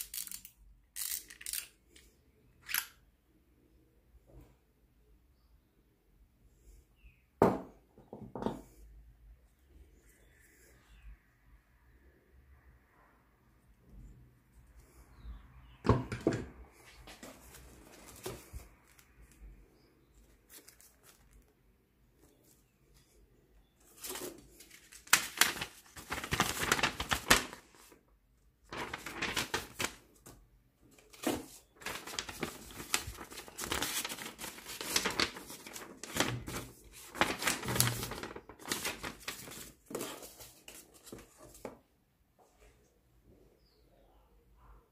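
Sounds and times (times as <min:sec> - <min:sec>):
paper rustling and crinkling: 0:16.8 - 0:19.5, 0:20.2 - 0:21.6, 0:23.8 - 0:28.0, 0:28.6 - 0:41.8.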